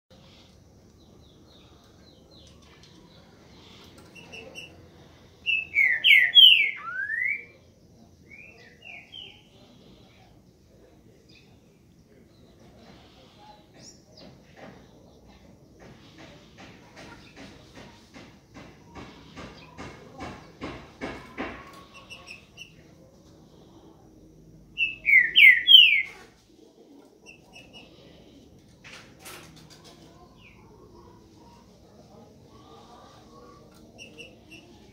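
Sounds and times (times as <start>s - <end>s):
bird singing whistled phrases: 5.5s - 7.5s, 24.8s - 26.1s.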